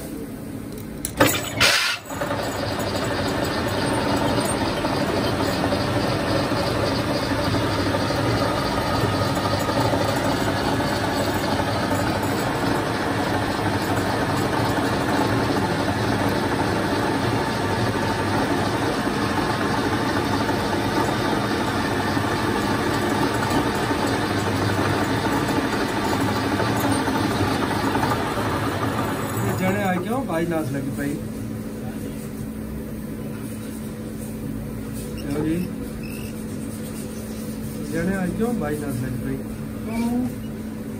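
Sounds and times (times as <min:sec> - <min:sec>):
metal lathe cutting steel: 0:01.2 - 0:30.5.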